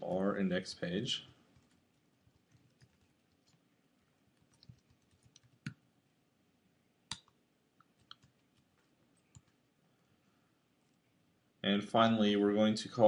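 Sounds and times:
typing on computer keyboard: 1.6 - 3.6, 4.4 - 5.8, 8.0 - 8.6.

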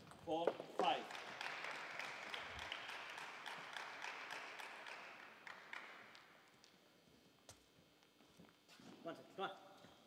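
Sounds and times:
spectators applauding: 0.8 - 6.2.

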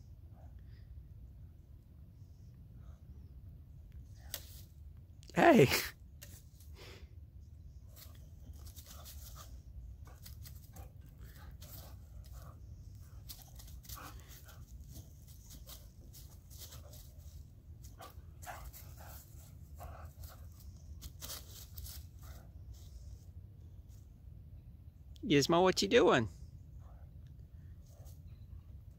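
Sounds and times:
twigs and dry leaves rustling: 4.0 - 7.0, 7.6 - 24.1.

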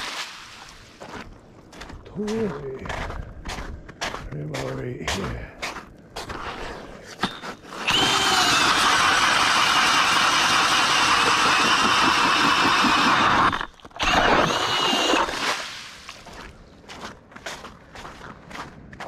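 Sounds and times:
auger blades cutting ice: 6.4 - 15.7
cordless drill motor whining: 7.8 - 15.3.

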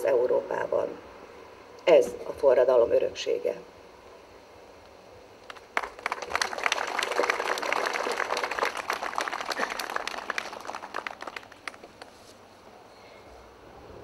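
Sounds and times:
audience applauding: 5.4 - 12.2.

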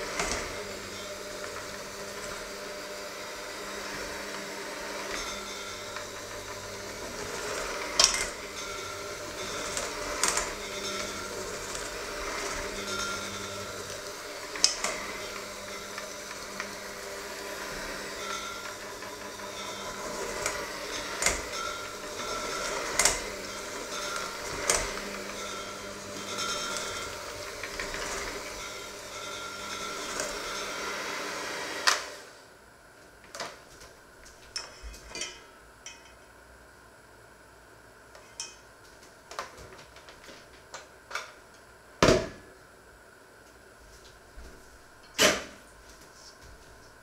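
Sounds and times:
electric hand mixer running: 0.0 - 32.6.

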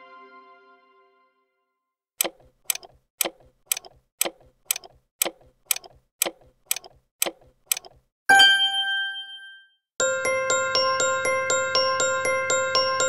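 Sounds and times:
clock ticking: 2.2 - 8.1.

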